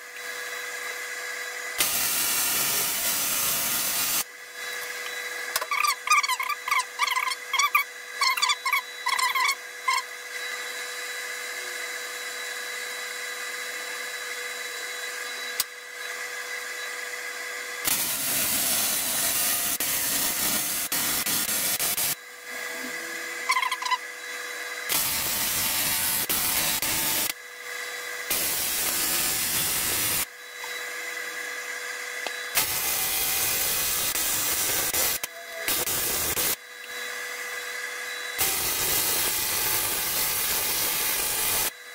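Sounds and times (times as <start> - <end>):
welding set hum: 0.0 - 41.9
welding arc crackling hiss: 1.8 - 10.0, 17.8 - 22.2, 24.9 - 27.4, 28.2 - 30.3, 32.5 - 36.6, 38.4 - 41.7.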